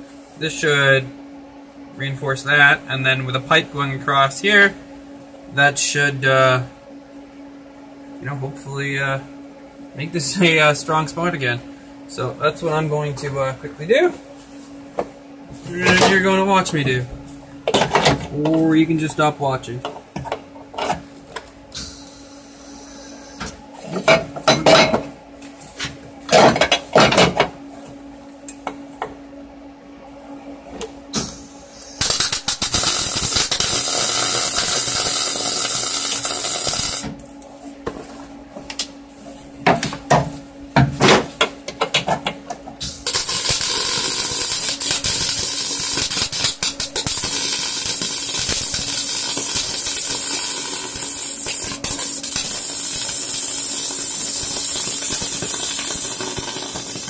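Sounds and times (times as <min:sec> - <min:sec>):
welder arc crackling and hissing: 0:15.7 - 0:17.4, 0:18.3 - 0:19.7, 0:21.7 - 0:23.9, 0:31.1 - 0:37.3, 0:42.8 - 0:57.0.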